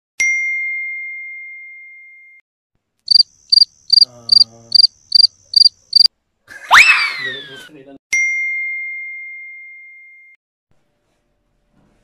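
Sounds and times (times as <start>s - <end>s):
cricket chirping: 3.1s - 6.1s.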